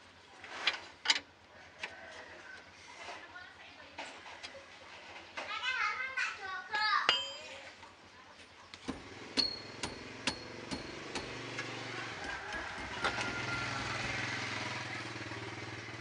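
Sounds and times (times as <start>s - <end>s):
sharp metallic clinks: 7.1s - 7.6s, 9.3s - 11.4s
steady engine hum: 8.8s - 16.0s.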